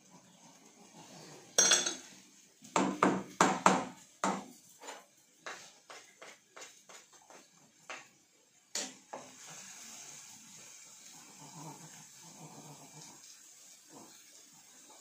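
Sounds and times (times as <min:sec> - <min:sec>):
spatula knocking and scraping pan: 0:01.6 - 0:09.4.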